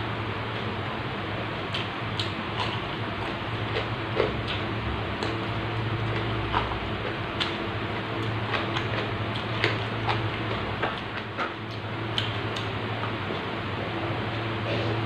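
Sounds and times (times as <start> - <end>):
steady low hum: 0.0 - 15.0
wet chewing mouth clicks: 1.7 - 13.5.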